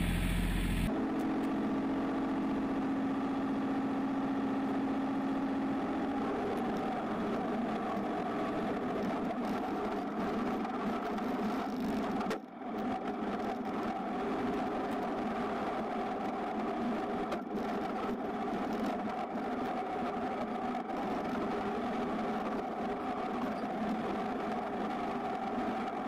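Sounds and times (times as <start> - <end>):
tractor diesel engine running: 0.0 - 0.9.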